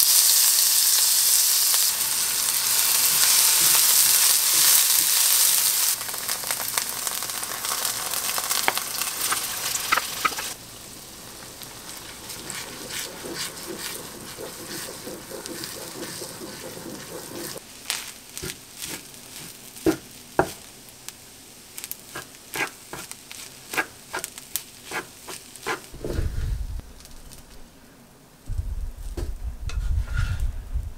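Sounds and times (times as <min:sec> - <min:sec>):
rice sizzling in a frying pan: 0:00.0 - 0:26.0
wooden spoon scraping a pan: 0:11.9 - 0:20.6, 0:22.1 - 0:26.5, 0:29.7 - 0:30.5
low bump: 0:26.0 - 0:27.3.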